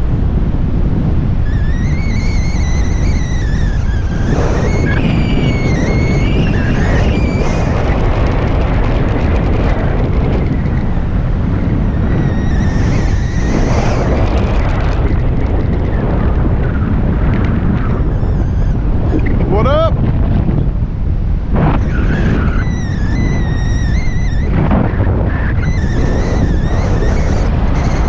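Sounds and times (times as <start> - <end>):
wind buffeting microphone: 0.0 - 28.0
high wavering whistle: 1.4 - 8.0, 12.0 - 14.1, 21.8 - 28.0.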